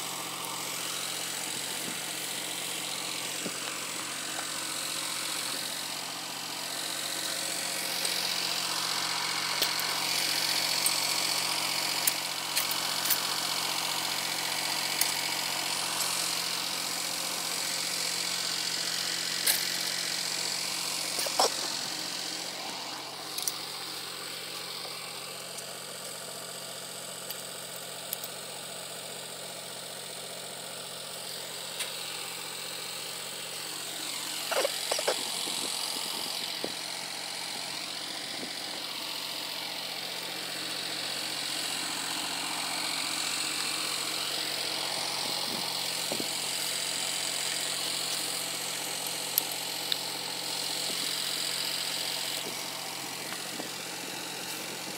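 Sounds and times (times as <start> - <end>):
diesel engine running steadily: 0.0 - 54.9.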